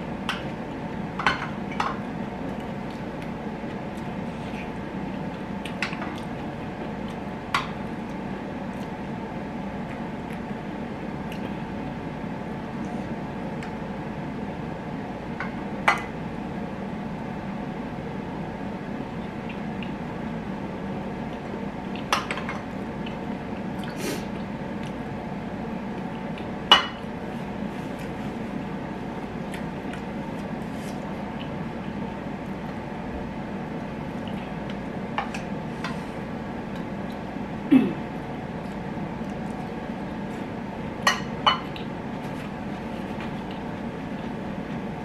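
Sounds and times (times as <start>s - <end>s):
wet chewing: 38.6s - 40.5s.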